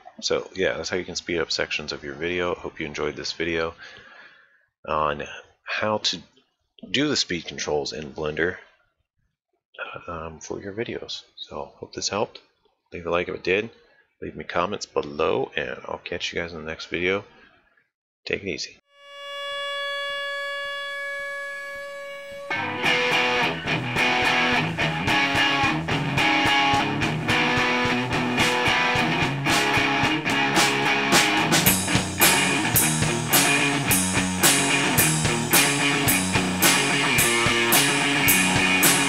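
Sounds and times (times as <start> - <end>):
held musical note: 18.9 - 24.8
guitar band with drums: 22.5 - 39.0.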